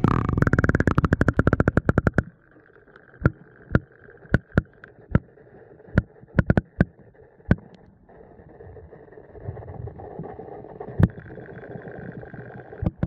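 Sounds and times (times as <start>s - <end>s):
sharp underwater clicks and knocks: 0.0s - 7.9s, 10.9s - 11.4s, 12.8s - 13.0s
underwater stream rush: 0.0s - 13.0s.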